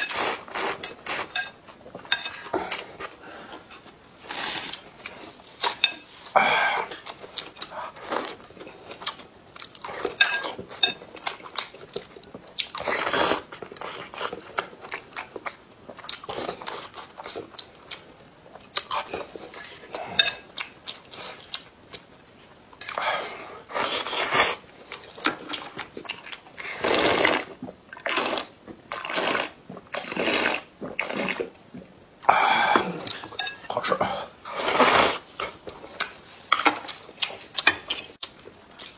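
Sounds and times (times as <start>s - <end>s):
slurping noodles and broth: 2.4s - 5.1s, 26.6s - 31.5s, 34.0s - 35.5s
chewing: 32.7s - 38.9s.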